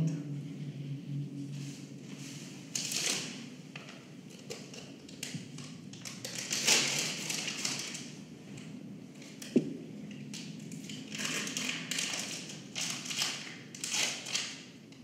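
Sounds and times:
paper rustling and crackling: 2.7s - 3.4s, 5.2s - 8.2s, 10.4s - 14.7s.

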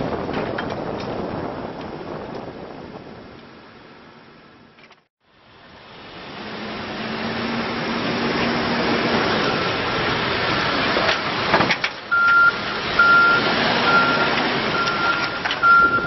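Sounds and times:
diesel engine running: 0.0s - 16.0s
reversing alarm beeping: 12.1s - 16.0s.

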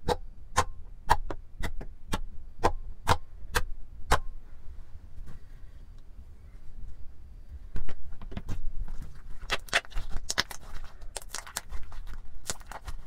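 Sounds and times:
slime sticky clicks and crackles: 9.5s - 13.0s.

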